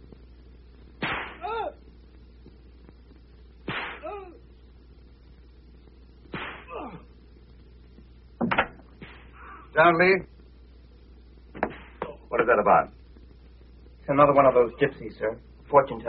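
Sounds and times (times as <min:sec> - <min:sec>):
whip cracking: 0:01.0 - 0:01.6, 0:03.7 - 0:04.2, 0:06.3 - 0:06.8.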